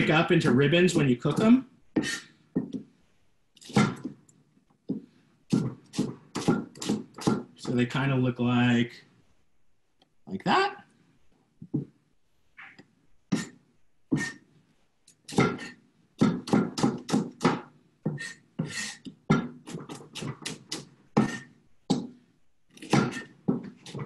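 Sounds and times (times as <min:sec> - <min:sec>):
knife chopping vegetables: 0:01.2 - 0:02.9, 0:03.6 - 0:04.2, 0:04.9 - 0:07.8, 0:15.3 - 0:22.2, 0:22.8 - 0:24.0.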